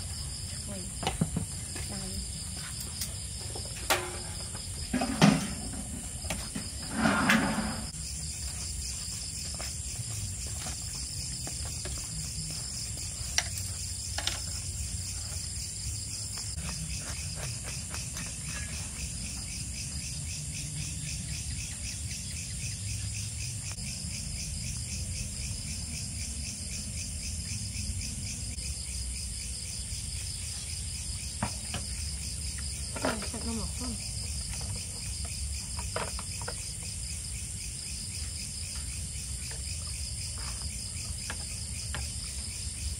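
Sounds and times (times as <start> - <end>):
crickets chirring: 0.0 - 42.9.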